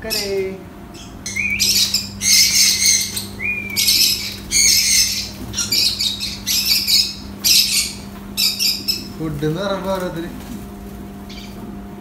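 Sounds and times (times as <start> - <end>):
parrot screeching: 0.1 - 9.2.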